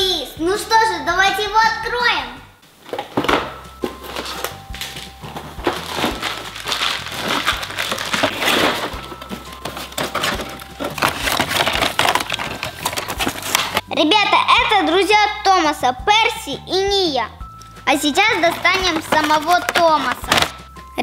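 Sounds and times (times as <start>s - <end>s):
quiet background music: 0.0s - 21.0s
packaging rustling and crackling: 2.8s - 13.9s, 18.2s - 20.7s.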